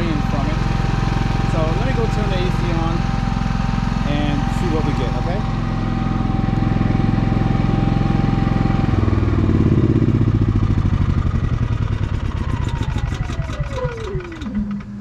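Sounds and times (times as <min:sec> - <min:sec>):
generator engine winding down: 0:00.0 - 0:15.0
falling whine: 0:04.1 - 0:15.0.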